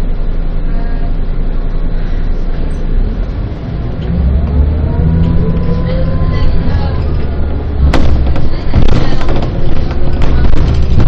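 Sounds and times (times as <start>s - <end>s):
bus engine: 0.0s - 11.0s
road noise: 0.0s - 11.0s
engine whine accelerating: 1.2s - 8.2s.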